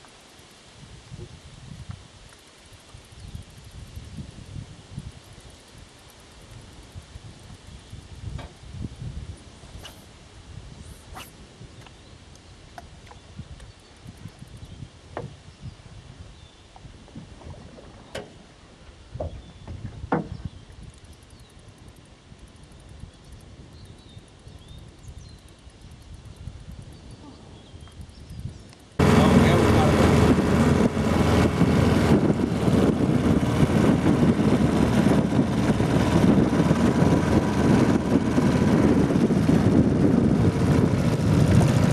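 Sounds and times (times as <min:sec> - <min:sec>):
small outboard motor running: 0:29.0 - 0:41.9
uneven low rumble: 0:29.0 - 0:41.9.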